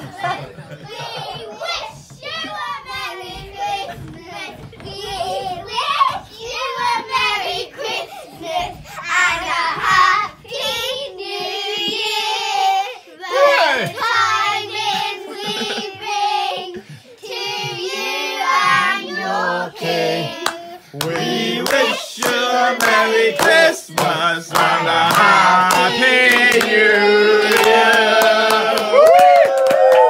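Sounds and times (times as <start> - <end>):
children singing: 0.0 - 29.0
hands clapping: 20.4 - 30.0.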